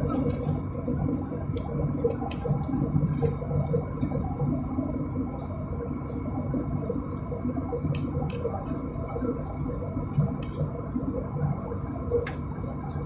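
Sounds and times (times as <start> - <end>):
jet engine cabin rumble: 0.0 - 13.0.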